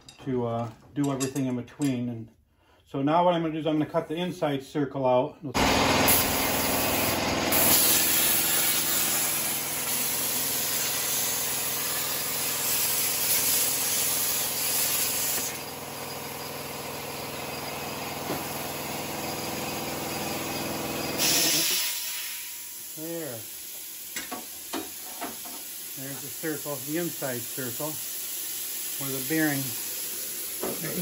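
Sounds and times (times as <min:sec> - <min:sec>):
plasma cutter hissing: 0:05.6 - 0:15.7, 0:21.1 - 0:31.0.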